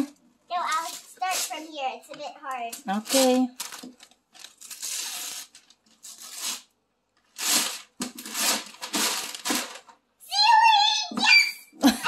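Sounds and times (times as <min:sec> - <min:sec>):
wrapping paper ripping: 0:00.7 - 0:01.7, 0:02.9 - 0:09.9.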